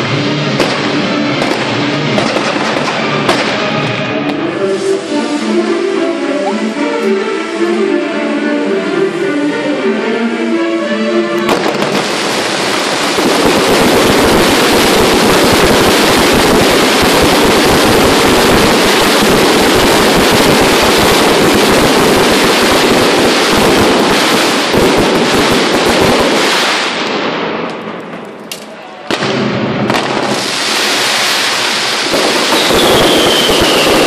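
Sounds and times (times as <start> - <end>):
fireworks bangs and crackle: 0.0 - 4.4, 11.5 - 34.0
music: 0.0 - 13.2.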